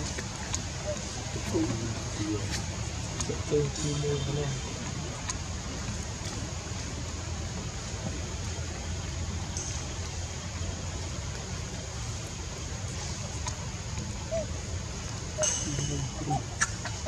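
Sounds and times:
faint ticks: 2.5s - 6.5s, 9.0s - 14.2s.

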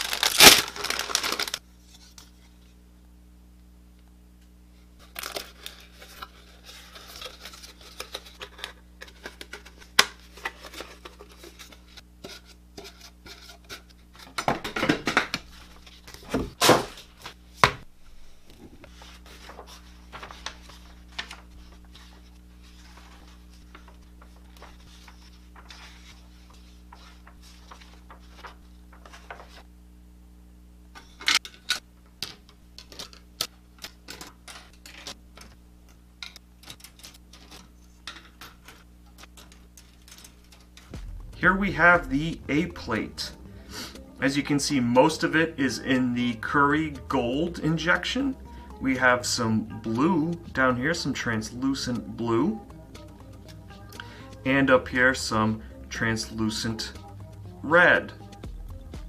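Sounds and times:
plastic bags crinkling and tearing: 0.0s - 1.6s, 5.0s - 11.8s
paper pages rustling: 0.0s - 2.6s, 5.0s - 17.4s, 18.0s - 29.7s, 36.6s - 41.3s.

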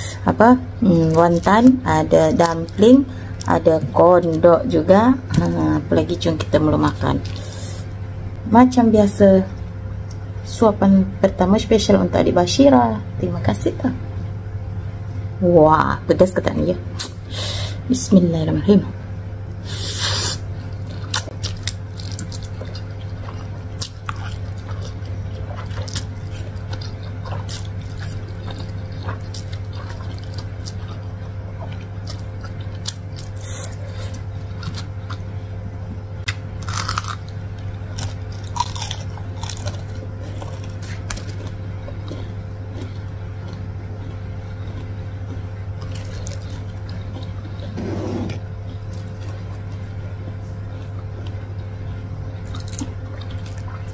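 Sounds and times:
steady low hum: 0.0s - 53.9s
chewing noodles: 19.8s - 35.3s, 36.2s - 53.9s.

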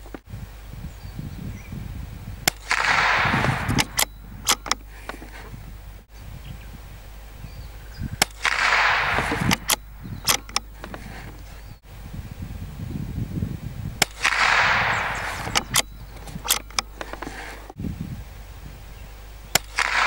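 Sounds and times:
rifle shot crack: 2.4s - 5.5s, 8.1s - 11.5s, 14.0s - 17.7s, 19.6s - 20.0s
light clicks: 8.2s - 11.8s, 14.0s - 17.8s.

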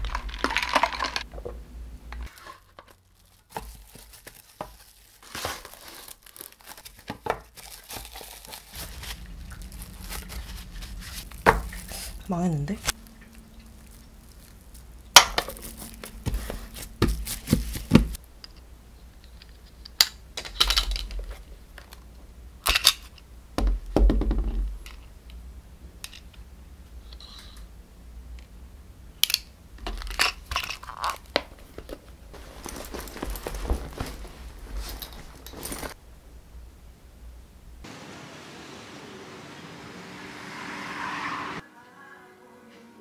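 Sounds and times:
plastic wrap crinkling: 2.3s - 18.2s, 30.8s - 36.0s.

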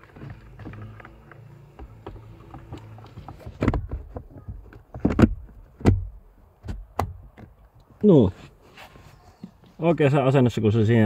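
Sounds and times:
light plastic taps and scraping: 0.0s - 6.0s.

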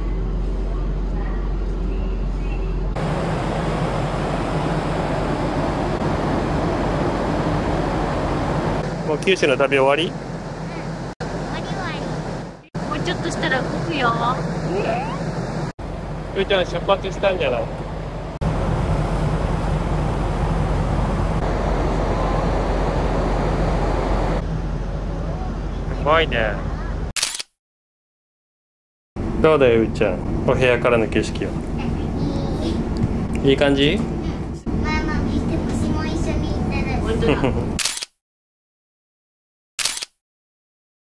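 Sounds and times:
low machinery hum: 0.0s - 27.1s, 29.2s - 37.8s
ship engines rumbling: 0.0s - 27.1s, 29.2s - 37.8s
ventilation rushing noise: 2.9s - 26.6s, 29.2s - 37.8s.

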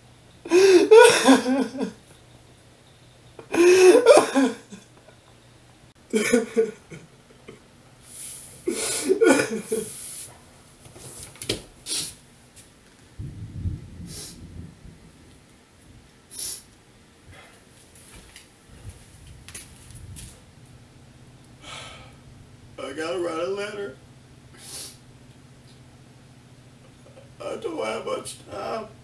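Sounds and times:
man sobbing: 0.5s - 2.0s, 3.4s - 4.9s, 6.1s - 7.6s, 8.7s - 10.1s
muffled rumble of movement: 12.6s - 16.2s, 17.2s - 21.4s.

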